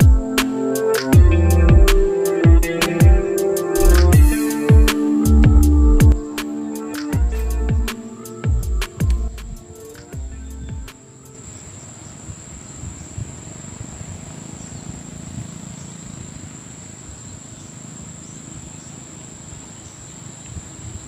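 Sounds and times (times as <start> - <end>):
insects trilling: 0.0 - 21.0
wind rumble on microphone: 11.6 - 21.0.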